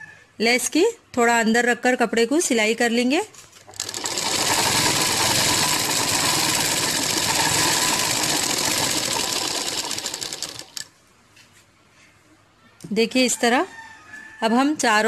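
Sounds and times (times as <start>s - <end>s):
sewing machine stitching: 3.7s - 10.9s.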